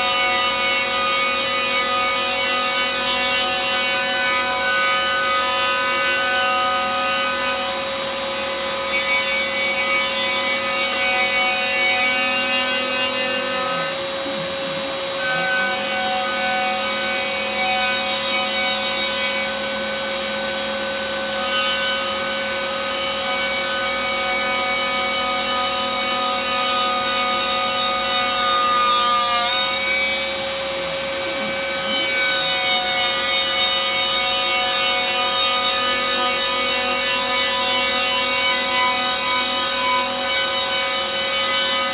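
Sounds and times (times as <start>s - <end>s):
router spindle whining: 4.4s - 21.5s.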